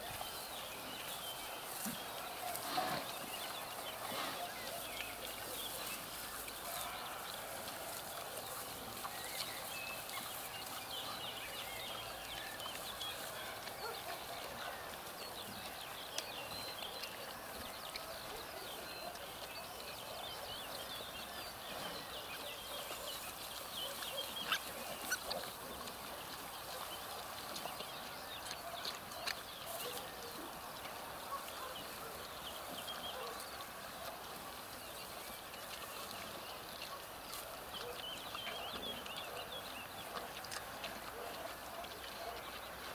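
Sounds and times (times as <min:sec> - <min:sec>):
straw rustling: 0:00.2 - 0:11.4.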